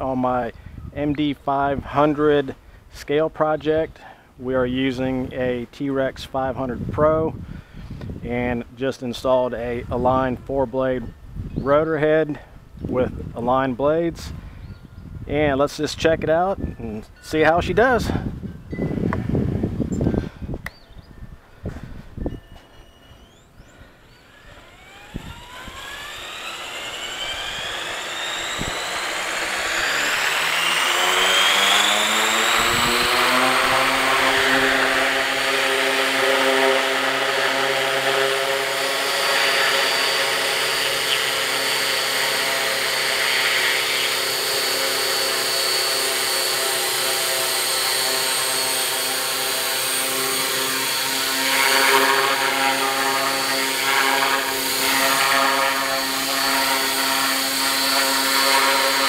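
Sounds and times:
electric motor whine: 22.6 - 59.0
helicopter rotor noise: 22.8 - 59.0.

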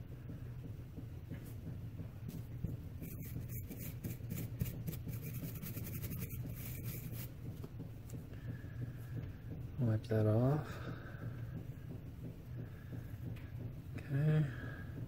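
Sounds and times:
brush scrubbing metal: 3.0 - 7.5.

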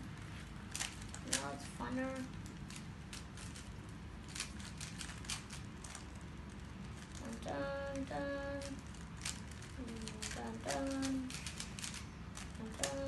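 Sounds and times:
puzzle cube clicks: 8.6 - 13.0.

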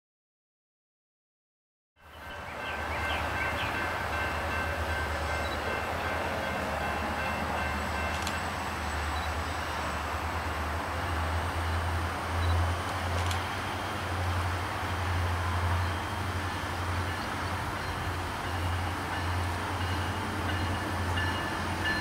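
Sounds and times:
distant train rumbling: 2.0 - 22.0.

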